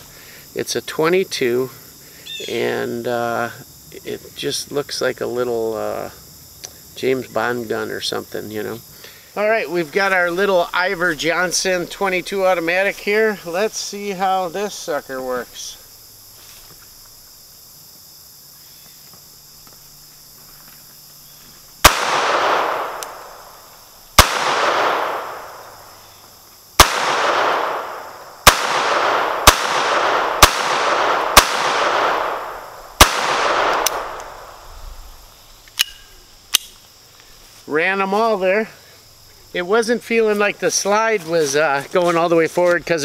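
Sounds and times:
pistol shots with echo: 0:21.8 - 0:23.5, 0:24.2 - 0:25.8, 0:26.8 - 0:34.6.

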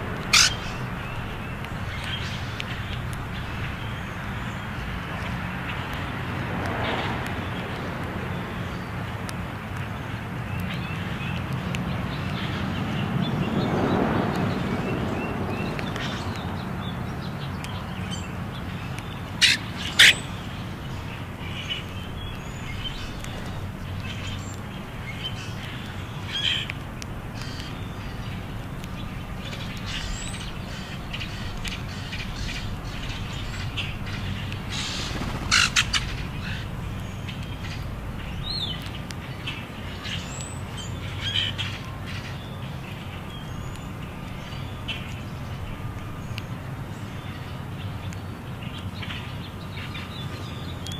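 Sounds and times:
birds giving harsh calls: 0:00.0 - 0:06.2, 0:17.4 - 0:45.6.

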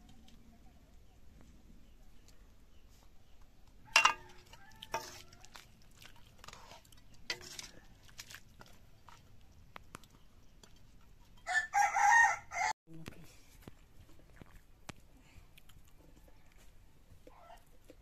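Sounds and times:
rooster crowing: 0:03.9 - 0:05.5, 0:11.4 - 0:12.7
metal ladle scraping pot: 0:03.9 - 0:09.3.

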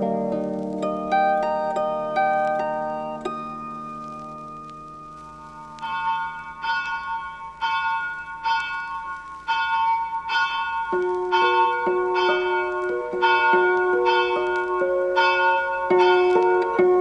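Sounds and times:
low bell notes: 0:00.0 - 0:17.0
bell-like chimes playing a tune: 0:05.4 - 0:17.0.

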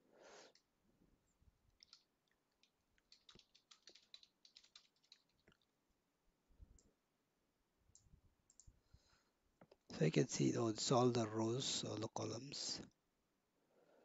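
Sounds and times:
faint keyboard typing: 0:00.4 - 0:05.8, 0:07.9 - 0:08.8.

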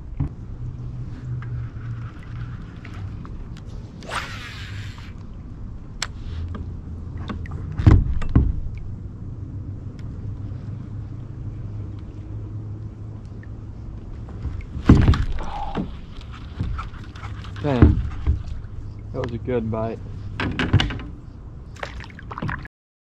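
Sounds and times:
heavy thumps: 0:14.8 - 0:16.0.

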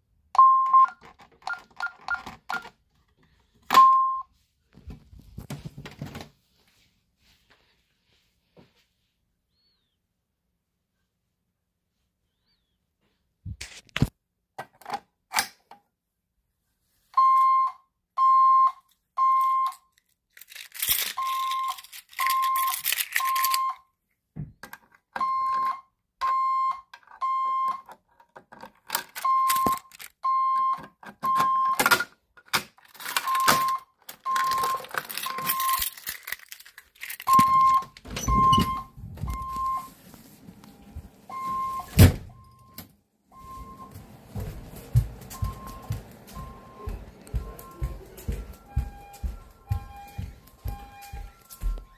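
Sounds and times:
fire alarm beeping: 0:03.7 - 0:04.3, 0:17.2 - 0:19.8, 0:21.2 - 0:23.8, 0:25.2 - 0:27.9, 0:29.2 - 0:31.8, 0:33.2 - 0:35.9, 0:37.3 - 0:39.9, 0:40.8 - 0:44.1, 0:45.3 - 0:51.9
rustling and clicks of handling: 0:19.6 - 0:23.8, 0:26.9 - 0:41.4.

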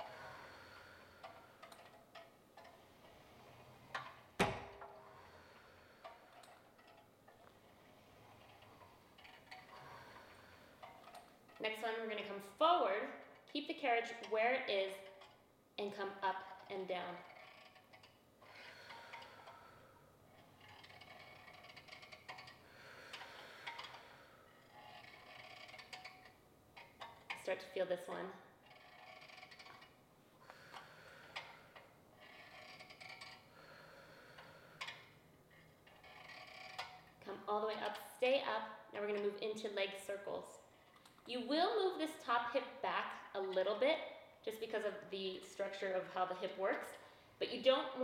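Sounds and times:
soft breathing: 0:00.0 - 0:04.0, 0:04.9 - 0:11.6, 0:18.4 - 0:25.9, 0:29.7 - 0:36.6
exercise machine clicking: 0:00.0 - 0:15.4, 0:16.1 - 0:39.4.

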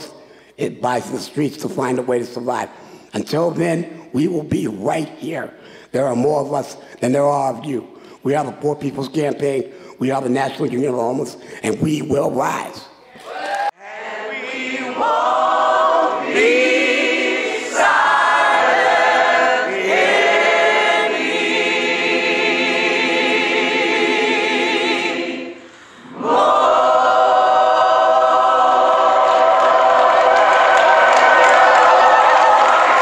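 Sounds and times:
choir singing a cappella: 0:13.2 - 0:33.0.

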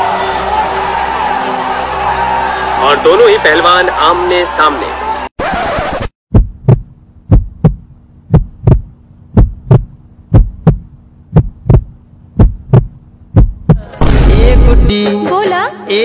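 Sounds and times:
heartbeat thumps: 0:06.3 - 0:14.9
faint steady hum: 0:06.8 - 0:13.6.

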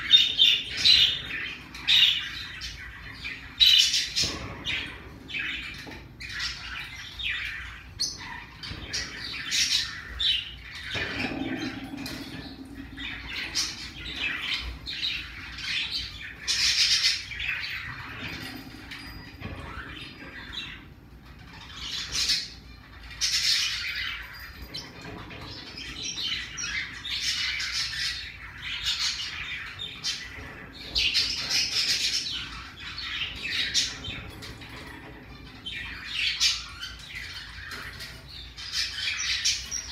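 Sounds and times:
parrotlet chirping and squawking: 0:00.0 - 0:24.6.

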